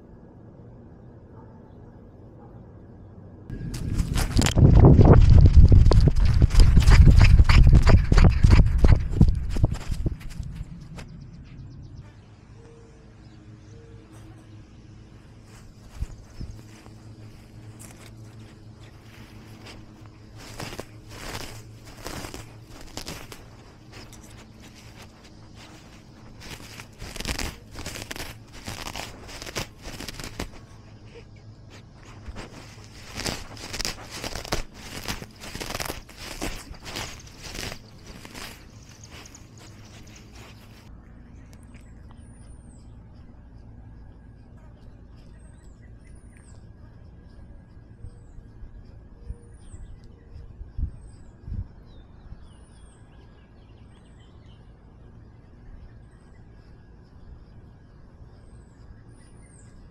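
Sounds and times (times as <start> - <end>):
low rumble: 2.9 - 12.6
crunching and crinkling: 3.5 - 12.1, 15.2 - 47.3.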